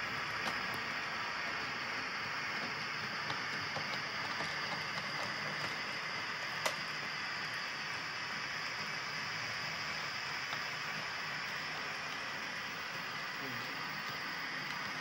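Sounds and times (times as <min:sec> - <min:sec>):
model trains hissing: 0:00.0 - 0:15.0.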